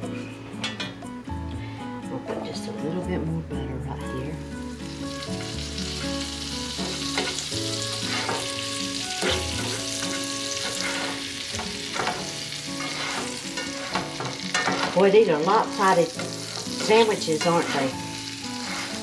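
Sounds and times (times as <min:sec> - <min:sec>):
sandwiches sizzling in butter: 0:04.5 - 0:19.0
metal spatula scraping pan: 0:06.8 - 0:08.6, 0:09.2 - 0:19.0.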